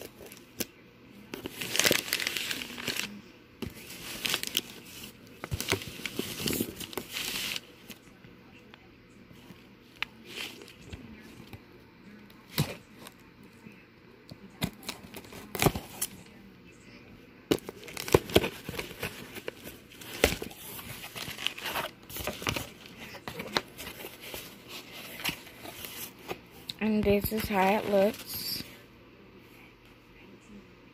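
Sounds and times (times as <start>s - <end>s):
paper and cardboard rustling: 1.4s - 8.0s, 17.5s - 26.4s, 27.0s - 28.7s
cardboard box torn open: 17.6s - 22.6s.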